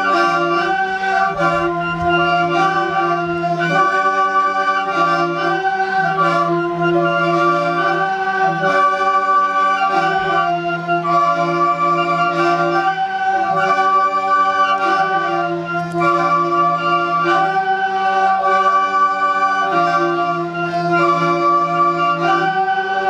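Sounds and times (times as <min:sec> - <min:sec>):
steady low drone: 0:00.0 - 0:11.9
organ-like chords: 0:00.0 - 0:23.0.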